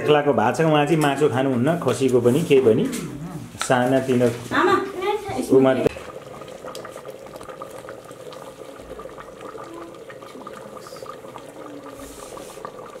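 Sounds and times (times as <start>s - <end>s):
curry bubbling in a pot: 3.6s - 13.0s.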